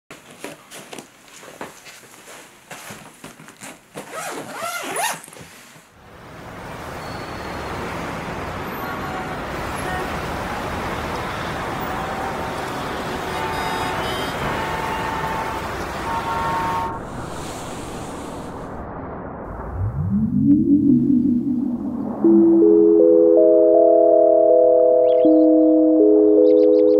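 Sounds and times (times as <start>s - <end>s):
suitcases being handled: 2.7s - 5.9s
road traffic noise: 5.9s - 18.6s
car horn toots: 11.2s - 17.0s.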